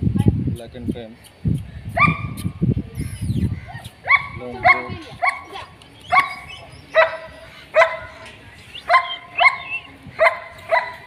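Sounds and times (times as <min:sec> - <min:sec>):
puppy yapping: 0:03.6 - 0:08.2, 0:08.8 - 0:11.0.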